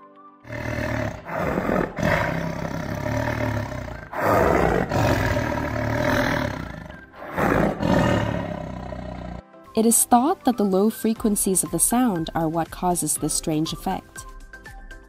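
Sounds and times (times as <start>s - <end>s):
tiger roaring: 0.5s - 9.4s.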